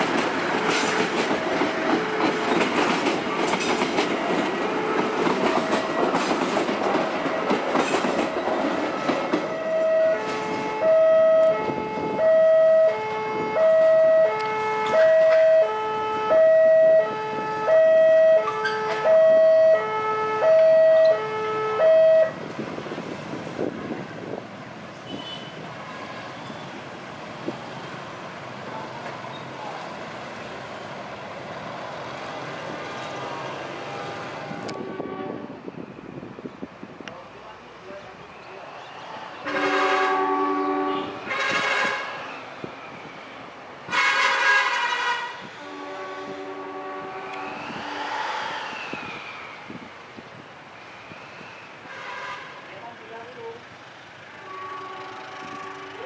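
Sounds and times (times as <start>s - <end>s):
train wheels clattering on rails: 0.0s - 9.6s.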